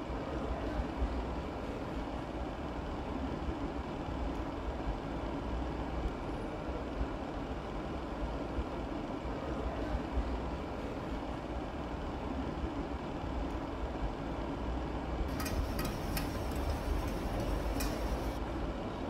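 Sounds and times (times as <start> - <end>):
low rumbling background noise: 0.0 - 19.0.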